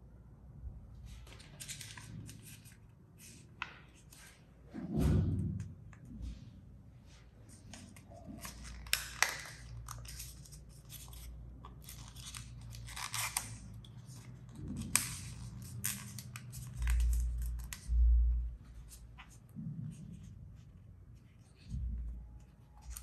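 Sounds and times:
paper bill crinkling and rustling: 1.0 - 4.4, 7.5 - 19.5
crisp paper snaps: 8.4 - 10.6.

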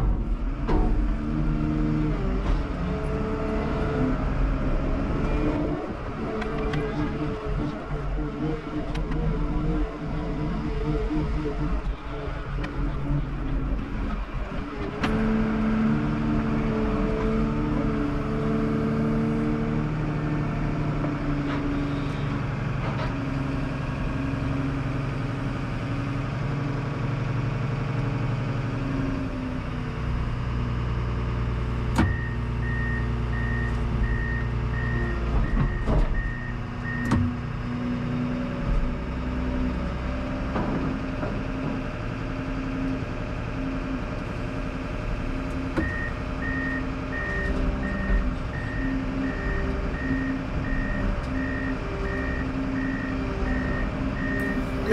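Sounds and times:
diesel engine revving under load: 0.0 - 54.9
backup alarm beeping: 32.1 - 37.2, 45.8 - 54.9.

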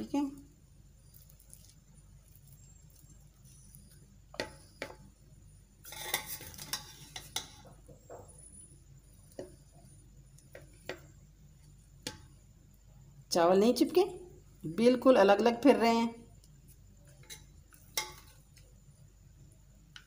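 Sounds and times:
fork scraping a plate: 5.8 - 7.7, 17.2 - 18.3.

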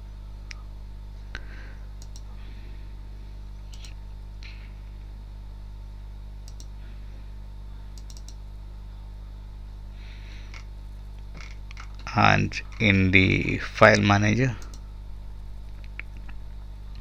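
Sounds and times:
low electrical hum: 0.0 - 17.0
computer mouse clicking: 2.0 - 2.3, 3.7 - 4.0, 6.4 - 6.7, 8.0 - 8.4.

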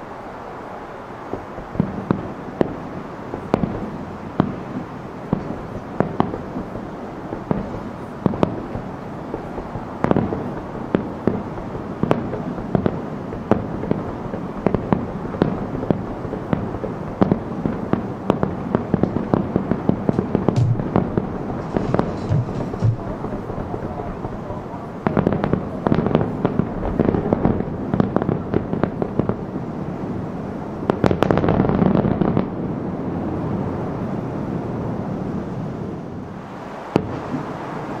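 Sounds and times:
distant firework bursts: 1.1 - 33.2, 36.3 - 38.0
steady rumble: 20.1 - 24.7.

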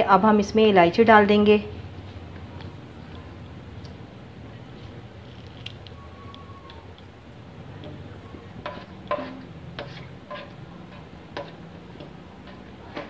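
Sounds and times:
spatula clinking on pan: 8.6 - 13.0.

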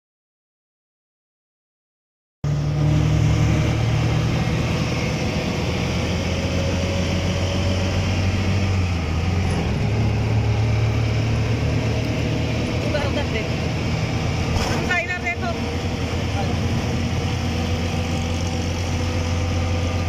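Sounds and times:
auto-rickshaw engine running: 2.4 - 20.0
road noise: 2.4 - 20.0.

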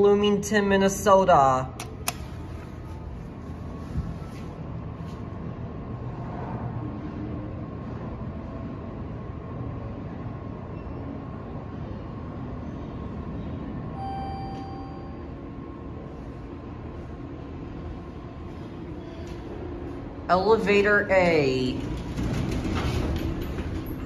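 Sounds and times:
elevator mechanical rumble: 0.0 - 24.0
short electronic tone: 14.0 - 15.3.

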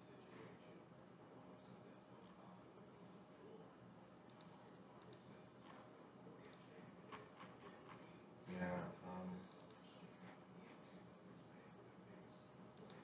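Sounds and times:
computer mouse clicks: 4.3 - 5.8, 9.4 - 9.8, 12.8 - 13.0.

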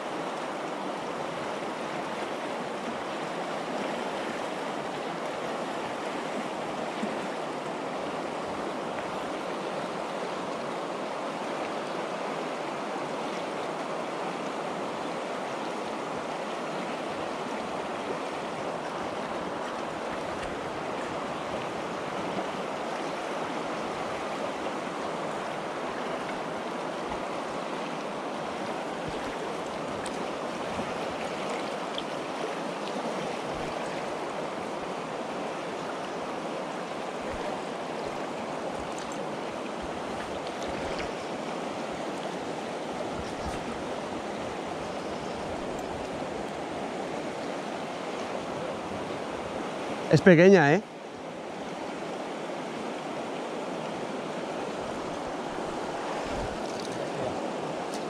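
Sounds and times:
river current rushing: 0.0 - 58.0.

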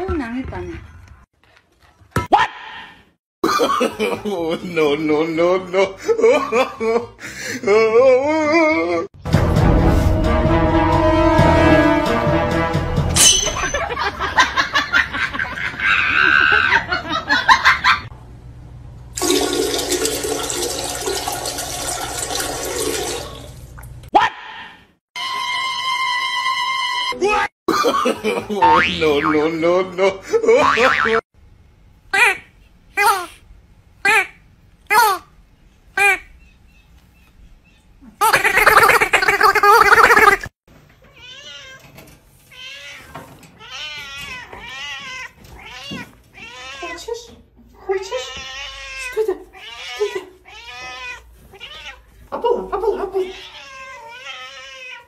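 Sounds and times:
toilet flushing: 19.1 - 23.8
cat meowing: 48.1 - 52.1, 53.2 - 55.0.

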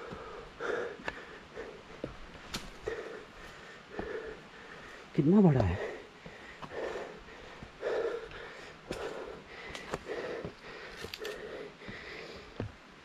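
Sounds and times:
man breathing heavily: 0.0 - 12.9.

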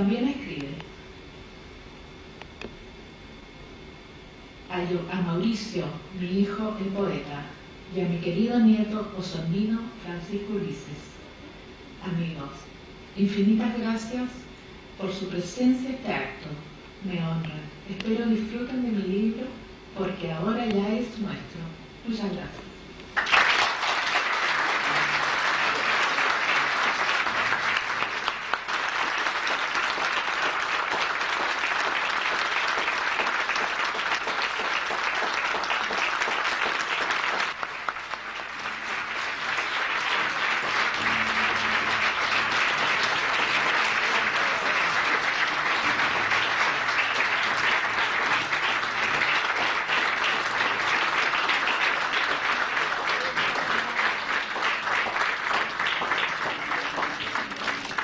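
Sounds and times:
audience applauding: 23.2 - 58.0.

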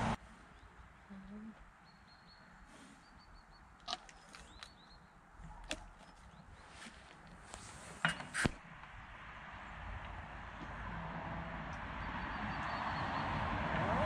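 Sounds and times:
small bird chirping: 0.5 - 5.2.

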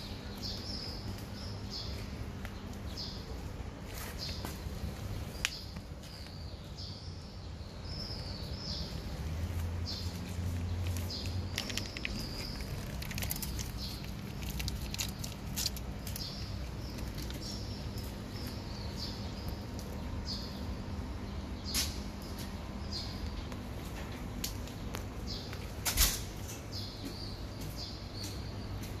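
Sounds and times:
small birds chirping: 0.0 - 29.0
steady low hum: 0.0 - 29.0
cats chewing food: 10.9 - 17.6.

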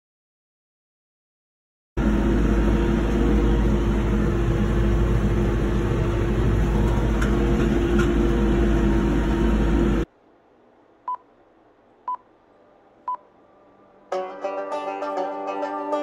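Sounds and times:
tractor engine running: 2.0 - 10.0
banjo music: 14.1 - 16.0.

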